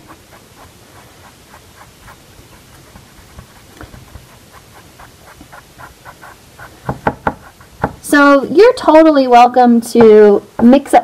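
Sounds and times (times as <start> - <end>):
paintbrush strokes on canvas: 0.0 - 8.4.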